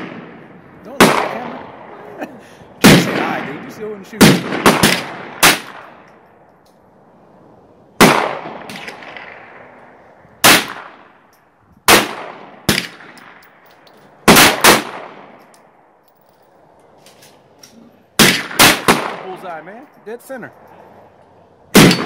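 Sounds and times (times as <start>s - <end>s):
pistol shots: 2.8s - 3.6s, 4.2s - 6.0s, 8.0s - 9.5s, 10.4s - 11.0s, 11.9s - 13.4s, 14.2s - 15.4s, 18.2s - 19.4s, 21.7s - 22.0s
faint distant gunshots: 2.8s - 6.0s, 8.0s - 9.7s, 18.2s - 19.4s.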